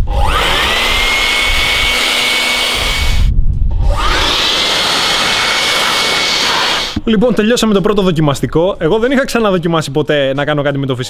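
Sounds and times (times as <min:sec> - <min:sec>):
electric blower whining: 0:00.0 - 0:07.0.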